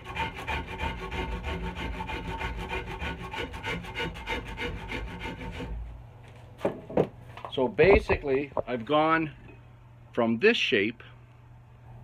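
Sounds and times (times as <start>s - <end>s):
rasp scraping wood: 0.0s - 5.9s.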